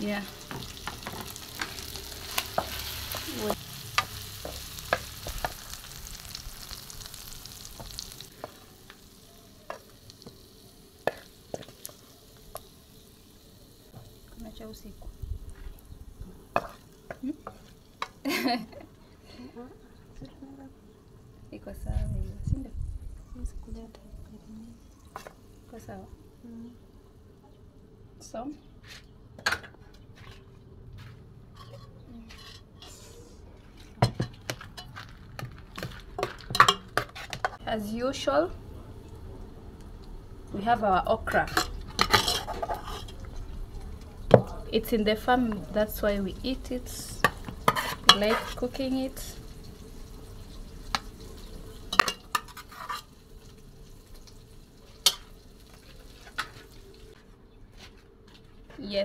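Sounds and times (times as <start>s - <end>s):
dishes and utensils clinking: 33.8s - 37.6s, 41.5s - 43.3s.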